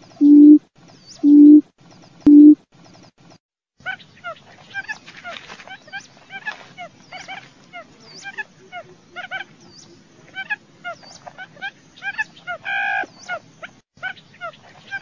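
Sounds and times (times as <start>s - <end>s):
bird chirping calls: 3.8s - 15.0s.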